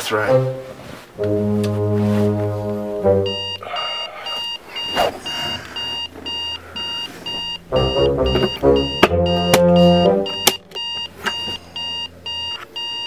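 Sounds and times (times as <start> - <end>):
low held note: 0.3 - 3.9
digital alarm clock beeping: 3.2 - 13.0.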